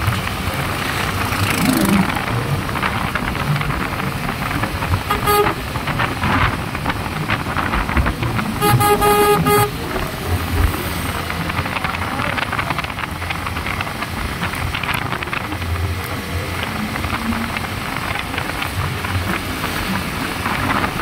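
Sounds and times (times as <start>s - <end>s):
wind and road rush: 0.0s - 21.0s
horn beeping: 5.0s - 6.0s, 8.4s - 10.6s.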